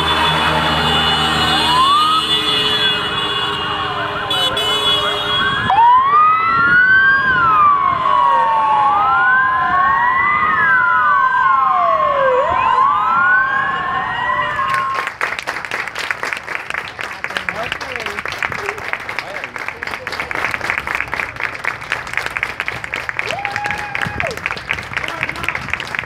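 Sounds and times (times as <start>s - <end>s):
police sirens wailing: 0.0s - 15.1s
crowd clapping: 14.5s - 26.0s.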